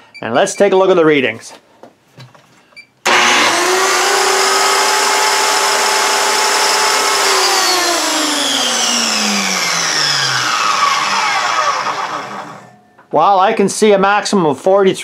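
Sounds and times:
circular saw motor running: 3.1 - 12.7.

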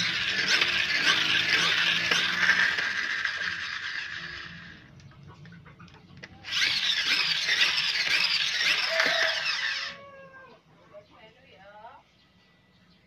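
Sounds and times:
toy truck flywheel whirring: 0.0 - 5.1, 6.2 - 10.0.

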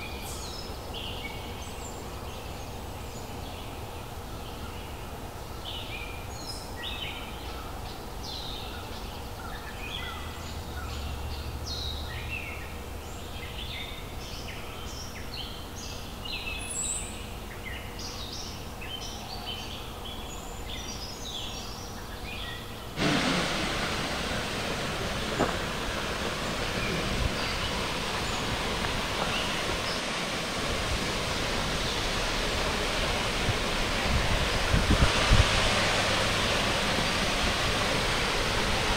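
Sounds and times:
songbirds chirping: 0.0 - 38.9
waterfall rushing: 23.0 - 38.9.

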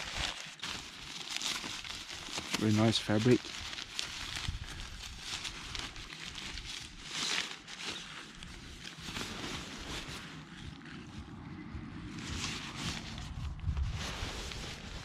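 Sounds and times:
nylon fabric rustling: 0.0 - 11.2, 12.2 - 15.0
wind buffeting microphone: 10.6 - 15.0.

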